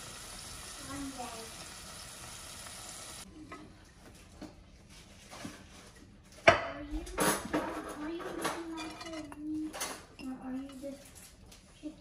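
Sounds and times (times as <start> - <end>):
food sizzling in a pan: 0.0 - 3.3
dishes clattering: 6.4 - 11.1.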